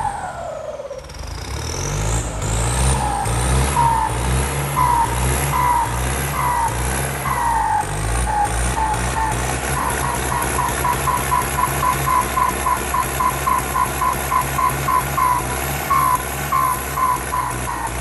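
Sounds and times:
diesel tractor engine running: 0:00.0 - 0:18.0
short high beeps: 0:09.8 - 0:17.5.

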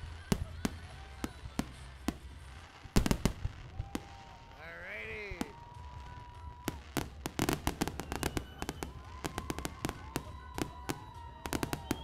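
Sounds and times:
fireworks cracking and popping: 0:00.0 - 0:12.0.

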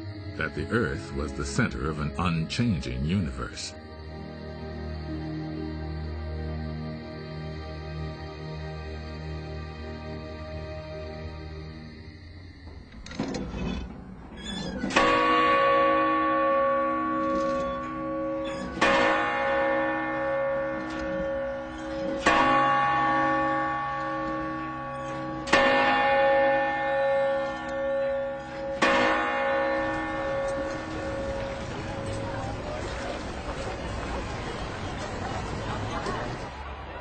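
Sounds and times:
large bell struck ringing: 0:14.9 - 0:32.9.

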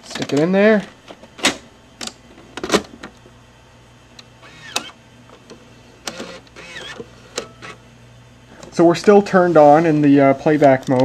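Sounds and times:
tape mechanism whirring: 0:04.2 - 0:05.0, 0:06.0 - 0:07.8.

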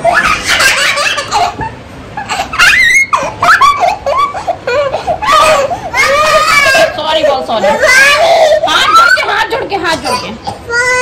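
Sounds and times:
child giggling: 0:00.0 - 0:07.0.

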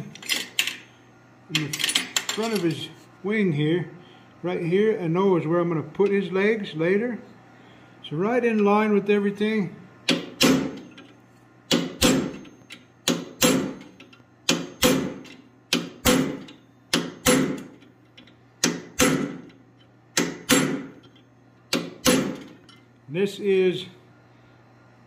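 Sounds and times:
hammer striking metal punch: 0:10.1 - 0:11.0, 0:11.7 - 0:17.8, 0:18.6 - 0:19.5, 0:20.1 - 0:21.0, 0:21.7 - 0:22.5.

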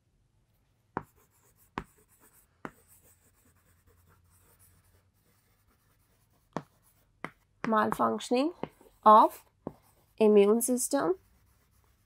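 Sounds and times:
chalk tapping on chalkboard: 0:00.9 - 0:10.2
chalk scratching on chalkboard: 0:01.0 - 0:12.0.

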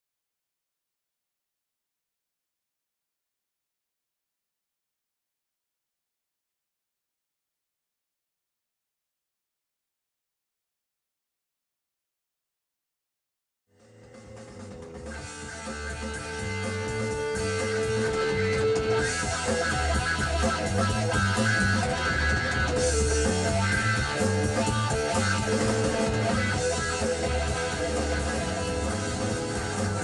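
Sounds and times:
guitar rock music: 0:13.7 - 0:30.0.

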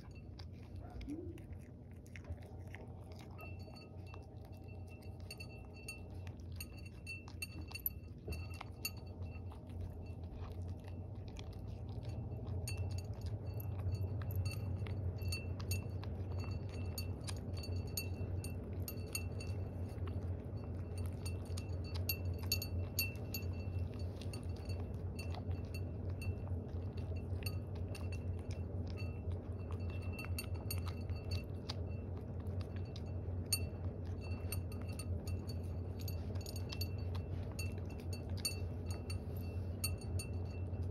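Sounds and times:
cat chewing food: 0:00.0 - 0:40.9
steady low hum: 0:00.0 - 0:40.9
collar fitting clinking on bowl: 0:20.6 - 0:26.4, 0:33.5 - 0:40.9.

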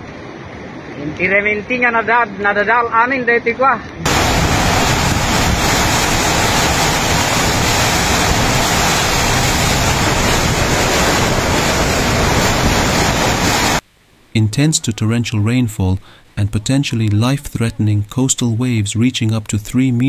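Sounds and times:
torrential rain: 0:04.0 - 0:13.9
wind buffeting microphone: 0:04.1 - 0:13.8.

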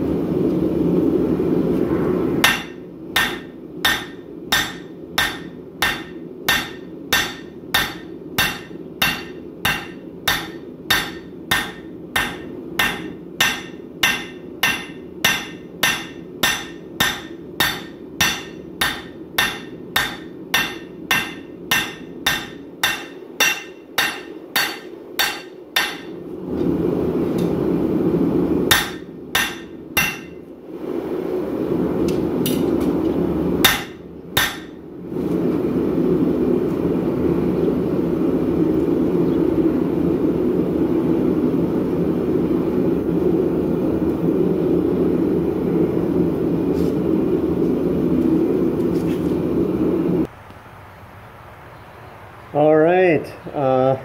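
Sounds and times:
loud steady rushing noise: 0:00.0 - 0:48.8
low steady rush: 0:00.0 - 0:54.0
hammer striking steel on anvil: 0:02.4 - 0:26.2, 0:28.7 - 0:30.4, 0:33.6 - 0:34.8.

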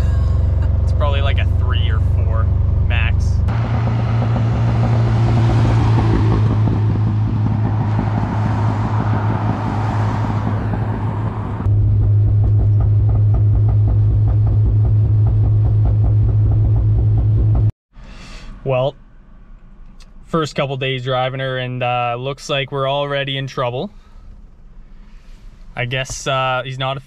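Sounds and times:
truck driving past: 0:00.0 - 0:13.3
engine drone inside cab: 0:00.0 - 0:21.1, 0:23.6 - 0:27.0.

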